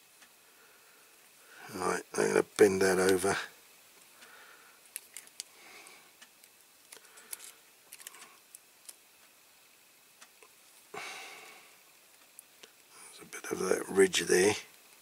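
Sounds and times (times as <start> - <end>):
small plastic clicks: 6.2 - 9.0.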